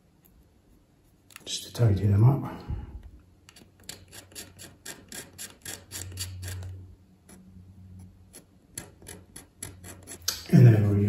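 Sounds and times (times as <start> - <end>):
chisel scraping plastic: 3.5 - 7.4, 8.3 - 10.4.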